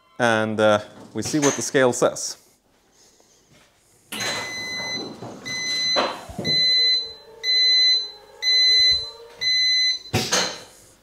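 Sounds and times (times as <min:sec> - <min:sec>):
warning beeper: 0:04.2 - 0:10.6.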